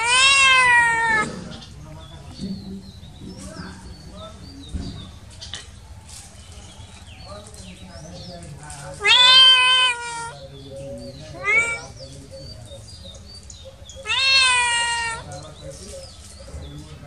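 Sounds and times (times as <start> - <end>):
kitten meowing: 0.0 - 1.3, 9.0 - 10.4, 11.4 - 11.9, 14.0 - 15.3.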